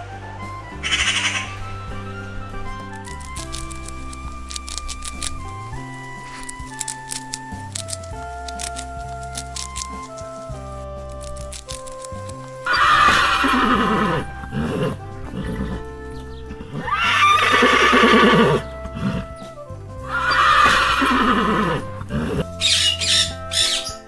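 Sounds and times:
background music: 0:00.0 - 0:24.0
horse neighing: 0:12.2 - 0:24.0.

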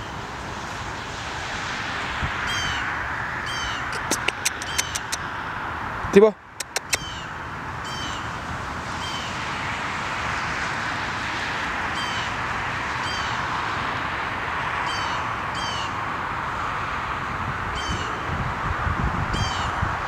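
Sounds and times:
high bird chirps: 0:03.5 - 0:05.2.

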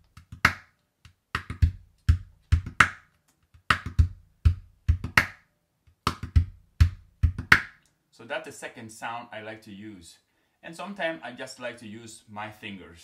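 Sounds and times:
gourd drum thuds: 0:01.4 - 0:03.0, 0:03.6 - 0:05.4, 0:06.0 - 0:07.7.

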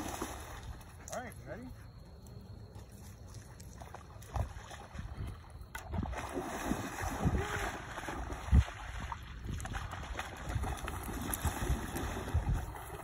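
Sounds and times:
dog splashing in water: 0:00.0 - 0:00.8, 0:03.6 - 0:05.2, 0:05.8 - 0:13.0
wind rumble on microphone: 0:04.3 - 0:13.0.

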